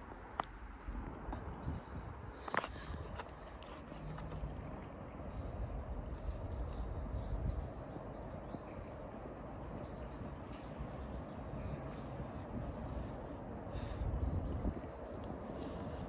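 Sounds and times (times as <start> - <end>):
low outdoor rumble: 0.0 - 16.0
small bird singing: 9.8 - 13.1.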